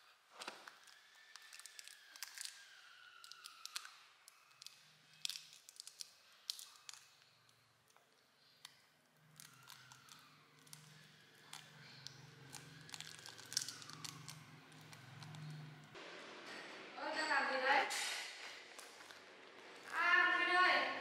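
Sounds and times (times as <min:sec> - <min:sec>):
small sharp clicks of candy: 0:00.4 - 0:15.7
plastic candy wrapper crackling: 0:00.4 - 0:16.0, 0:18.7 - 0:20.2.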